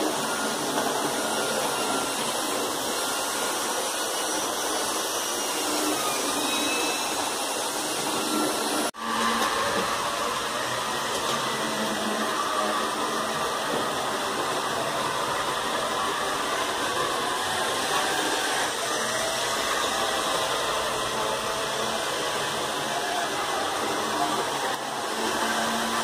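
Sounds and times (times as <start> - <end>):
model train motor whirring: 0.0 - 26.0
wheels rolling on rails: 0.0 - 26.0.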